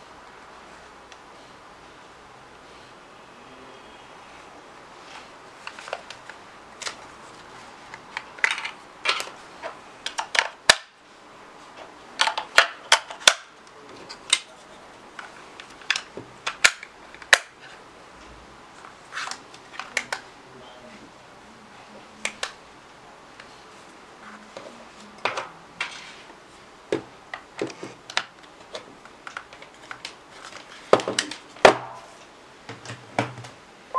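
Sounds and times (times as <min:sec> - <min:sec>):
plastic clicks and snaps: 0:19.2 - 0:20.2.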